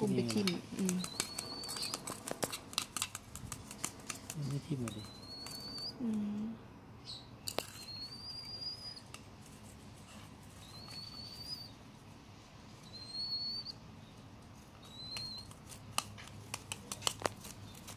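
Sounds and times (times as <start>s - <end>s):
young sparrow begging calls: 0.0s - 2.8s, 4.2s - 6.1s, 7.0s - 9.1s, 10.1s - 11.8s, 12.8s - 15.6s
sharp clicks: 0.2s - 6.2s.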